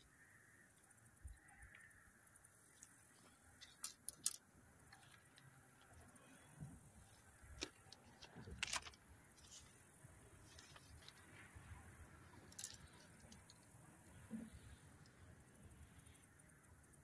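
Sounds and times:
fishing tackle clicks and rattles: 0:02.8 - 0:05.9, 0:07.5 - 0:09.6, 0:12.4 - 0:13.9.

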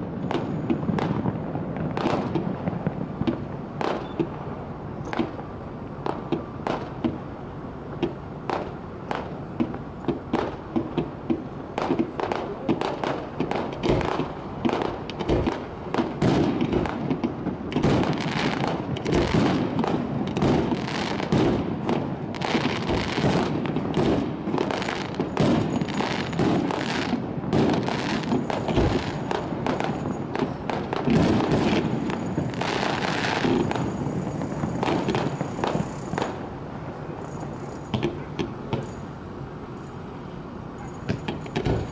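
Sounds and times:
fireworks crackling: 0:00.0 - 0:41.9
fireworks shells bursting: 0:08.0 - 0:40.0, 0:40.8 - 0:41.9.

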